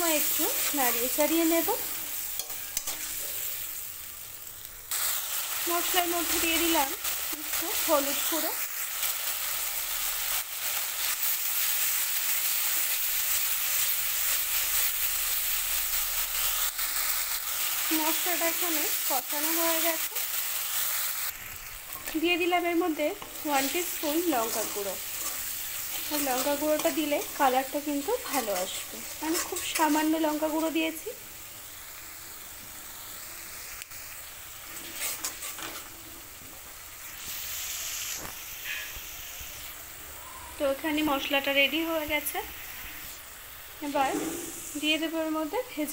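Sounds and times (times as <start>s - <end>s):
paste sizzling in hot oil: 0.0s - 45.9s
spatula scraping: 23.2s - 27.5s, 28.2s - 30.1s, 34.8s - 35.9s.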